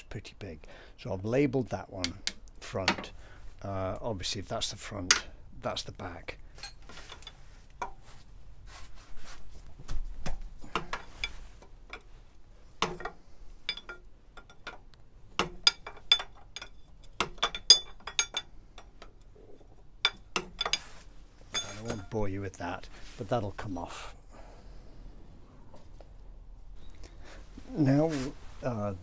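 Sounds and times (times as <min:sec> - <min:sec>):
spanner clinking against metal pipes: 0:02.0 - 0:03.2, 0:05.0 - 0:05.4, 0:06.5 - 0:08.0, 0:10.6 - 0:12.1, 0:12.8 - 0:22.3.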